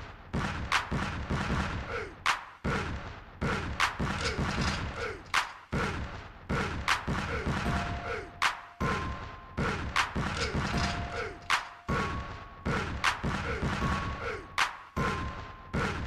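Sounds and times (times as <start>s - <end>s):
snare hits: 0.4s - 8.9s, 9.9s - 12.0s, 14.6s - 15.0s.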